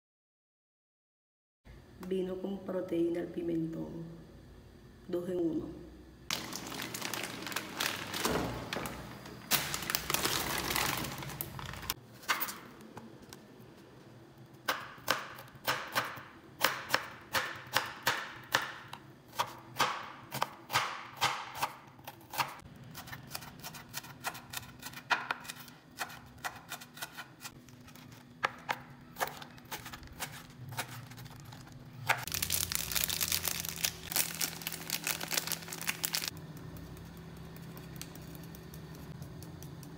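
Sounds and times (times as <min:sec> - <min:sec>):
knife chopping on cutting board: 0:14.7 - 0:27.6.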